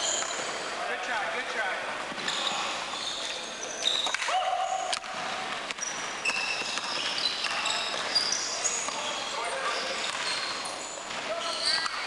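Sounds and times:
sneakers squeaking on gym floor: 0:00.0 - 0:00.7, 0:02.1 - 0:12.0.

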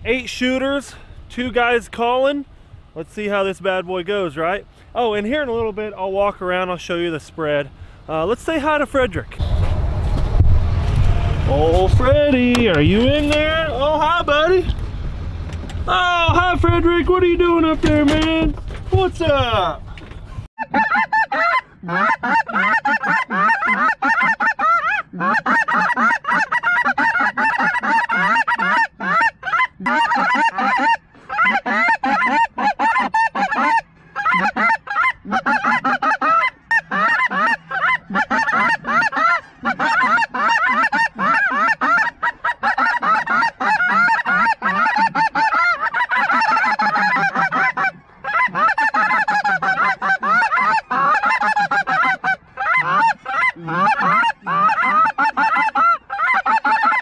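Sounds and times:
geese honking: 0:20.6 - 0:57.0.

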